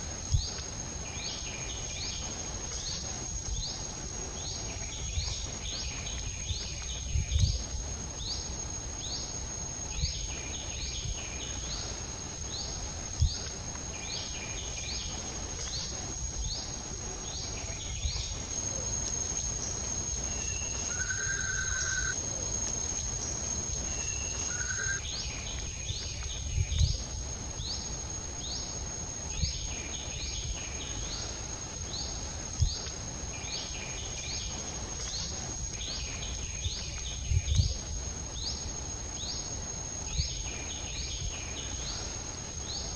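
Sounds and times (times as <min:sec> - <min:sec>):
high insect whine: 0:00.0 - 0:42.9
bird chirping: 0:10.0 - 0:27.0
whistled bird notes: 0:20.2 - 0:22.2, 0:23.7 - 0:26.9.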